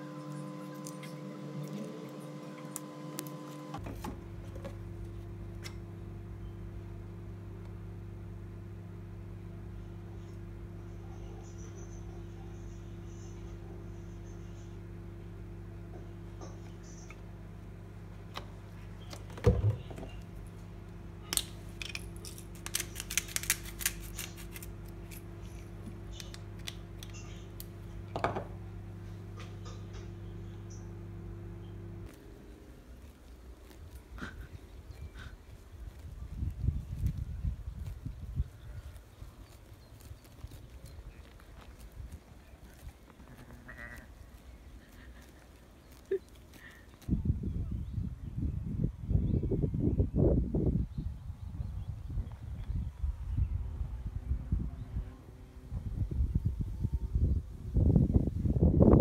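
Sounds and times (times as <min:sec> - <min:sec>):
low mechanical hum: 0:00.0 - 0:59.0
pepper grinder cracking peppercorns: 0:21.3 - 0:27.8
grinder knocking on counter: 0:28.1 - 0:28.6.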